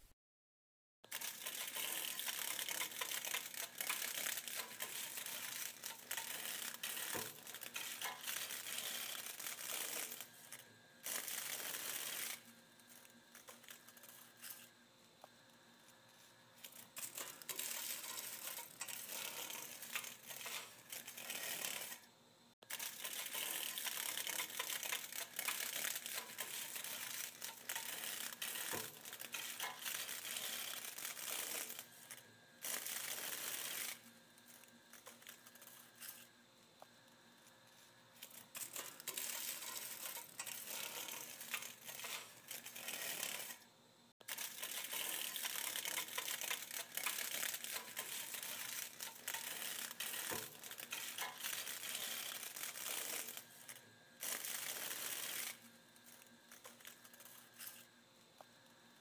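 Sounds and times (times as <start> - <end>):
dragonfly wings rustling: 1.1 - 14.7, 16.6 - 22.0, 22.7 - 32.0.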